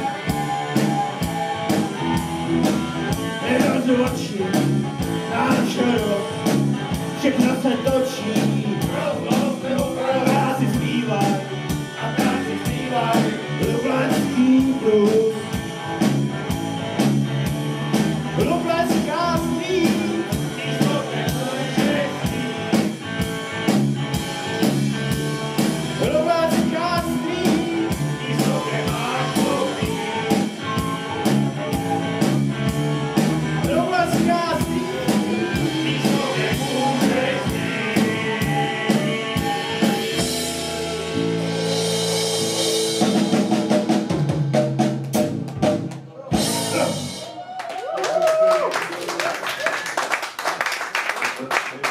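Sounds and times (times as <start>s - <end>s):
steady drum beat: 0.0s - 47.5s
male vocal group singing: 3.4s - 15.6s, 18.3s - 22.9s, 26.0s - 32.4s, 33.6s - 39.6s
flute: 28.4s - 32.8s, 37.4s - 41.2s.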